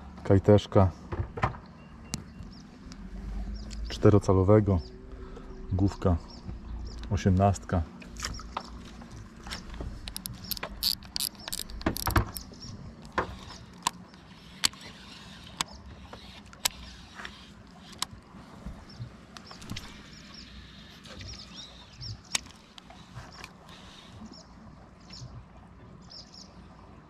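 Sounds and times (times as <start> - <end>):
fishing reel clicking: 10.0 - 18.1.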